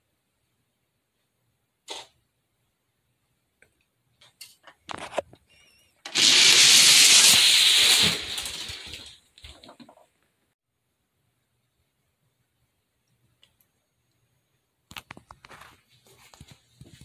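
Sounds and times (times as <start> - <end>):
toy cars rolling down plastic track: 6.1 - 10.0.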